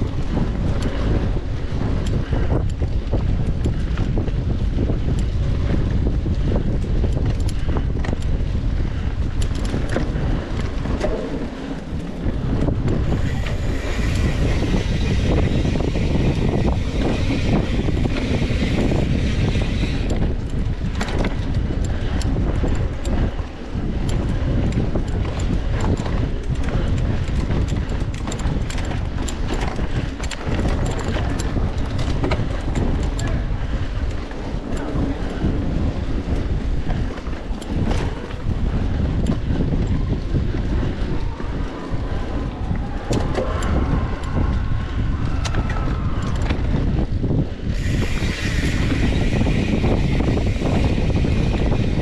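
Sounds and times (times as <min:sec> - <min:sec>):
bike clicks and rattles: 0:00.0 - 0:52.0
wind buffeting microphone: 0:00.0 - 0:52.0.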